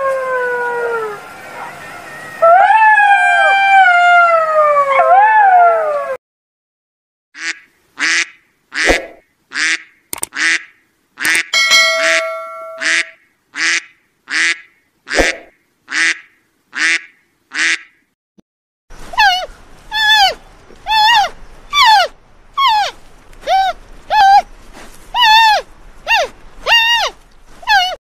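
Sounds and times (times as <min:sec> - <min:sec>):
brief ringing tone: 0:11.4 - 0:13.1
duck quacking: 0:16.8 - 0:17.9.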